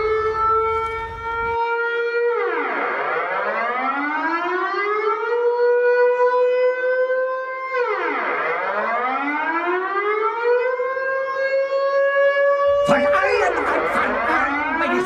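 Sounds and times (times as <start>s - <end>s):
air-raid siren wailing: 0.0s - 15.0s.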